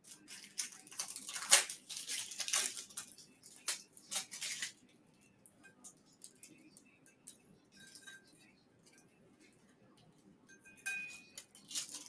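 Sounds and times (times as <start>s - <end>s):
hands crinkling paper and tape: 0.0s - 8.1s, 11.3s - 12.0s.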